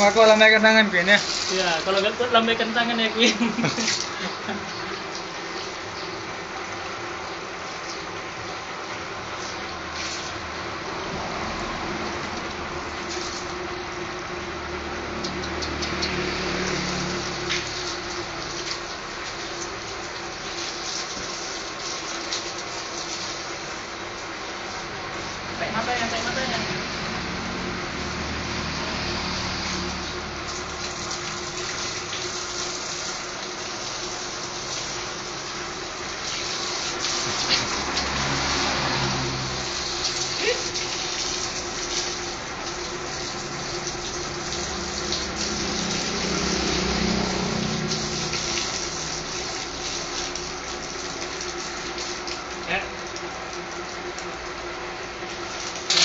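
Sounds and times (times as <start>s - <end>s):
hose water splashing: 0.0s - 56.0s
water dripping: 15.1s - 23.4s, 29.8s - 56.0s.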